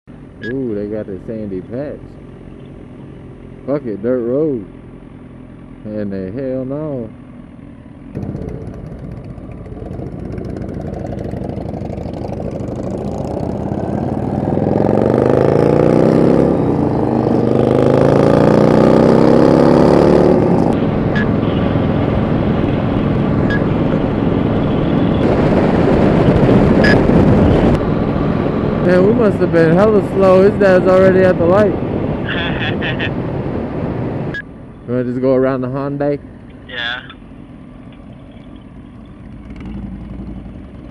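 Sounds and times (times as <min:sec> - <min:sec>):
motorcycle engine accelerating: 0:02.1 - 0:34.4, 0:37.3 - 0:40.9
wind noise on microphone: 0:22.4 - 0:28.6.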